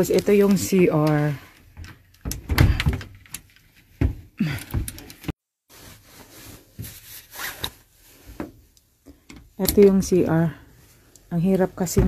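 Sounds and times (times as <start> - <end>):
wooden door knocks and thuds: 2.3 - 3.1.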